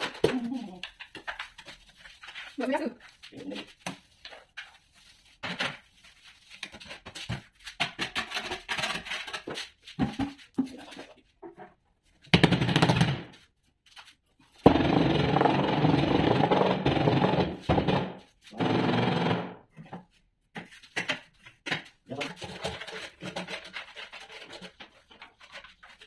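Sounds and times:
scraping and knocking on countertop: 6.6 - 11.8, 19.7 - 25.6.

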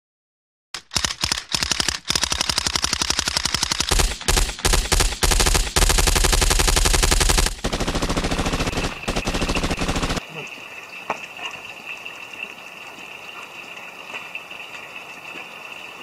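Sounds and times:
machine-gun fire bursts: 0.8 - 10.2.

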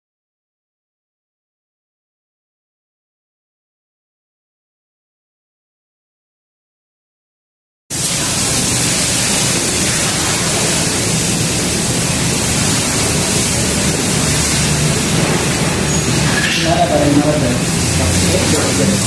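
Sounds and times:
steady hiss: 7.9 - 19.0.

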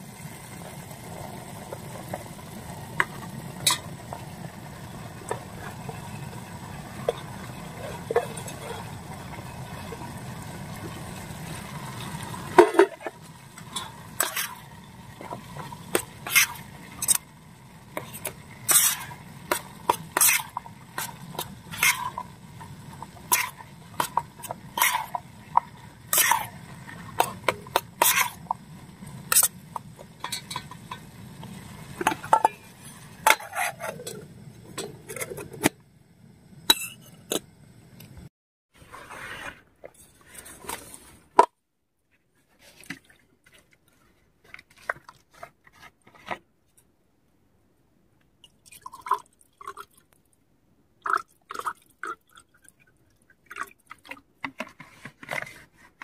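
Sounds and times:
pot and utensils clinking: 3.0 - 10.0, 11.9 - 17.2, 17.9 - 28.6, 29.3 - 35.7, 36.7 - 37.4
metal spoon scraping pot: 5.2 - 9.9, 12.0 - 17.2, 17.9 - 28.6, 29.3 - 35.7, 36.7 - 37.4
water pouring into glass: 48.5 - 50.0.

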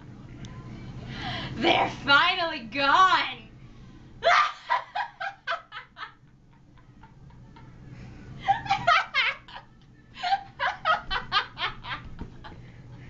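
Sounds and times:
people laughing: 4.2 - 13.0.

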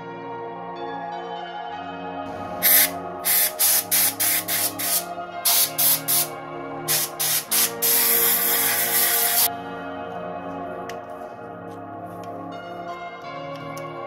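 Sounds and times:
background music with held notes: 0.0 - 14.0
compressed air blasts: 2.6 - 6.3, 6.9 - 9.5.

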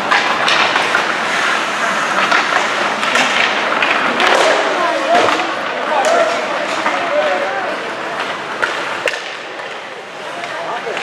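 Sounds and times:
hockey sticks and puck clacking: 0.0 - 11.0
noisy rink din: 0.0 - 11.0.

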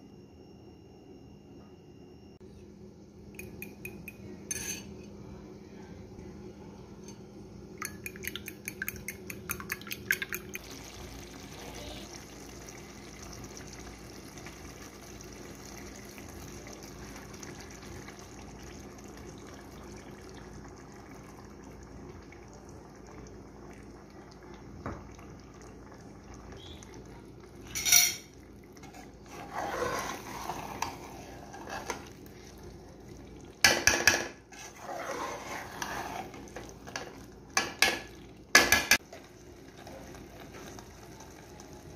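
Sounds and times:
low steady hum: 0.0 - 41.9
spoon clanking against pot: 3.4 - 5.0
fork beating eggs in a bowl: 7.8 - 10.6
metal spoon scraping a pot: 28.8 - 32.1, 34.0 - 37.1.

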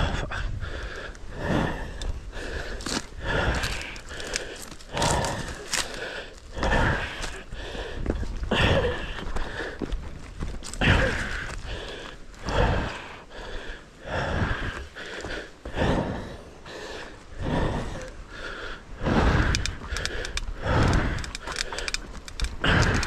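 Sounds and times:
person breathing hard: 0.0 - 23.0
bike tyres rumbling on rough trail: 1.4 - 13.5, 19.0 - 23.0.

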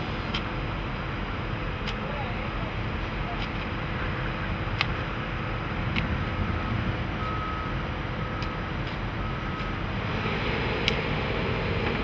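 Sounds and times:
excavator diesel engine running: 0.0 - 12.0
reversing alarm beeping: 7.2 - 9.8.

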